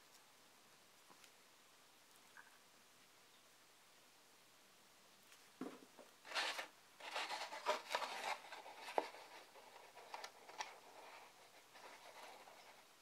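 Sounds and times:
paper rustling and rubbing: 6.2s - 13.0s.

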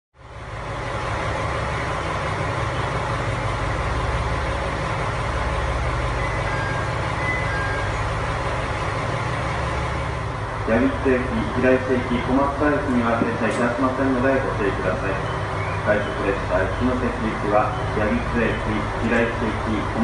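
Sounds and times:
diesel railcar engine idling: 0.2s - 20.0s.

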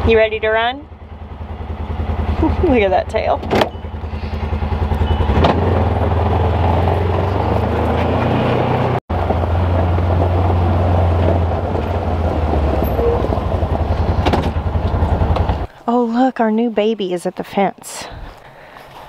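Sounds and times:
vehicle engine droning: 0.0s - 15.7s.

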